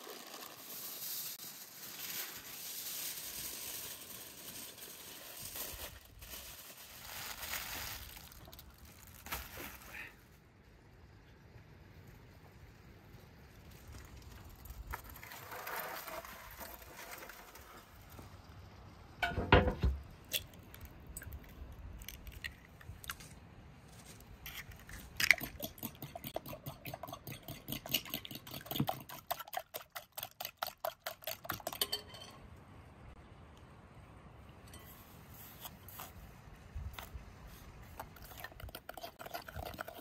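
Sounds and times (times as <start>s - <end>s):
thump: 19.2s - 20.0s
fork beating eggs in glass bowl: 25.2s - 32.3s, 38.0s - 40.0s.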